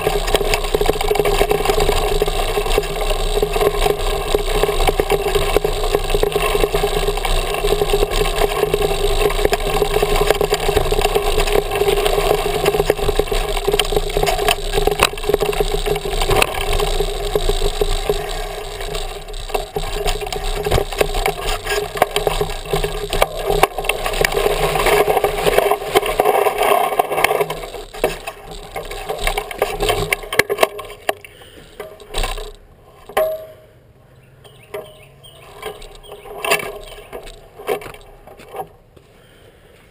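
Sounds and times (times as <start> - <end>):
mountain bike rattling over rocks: 0.0 - 33.4, 34.5 - 39.4.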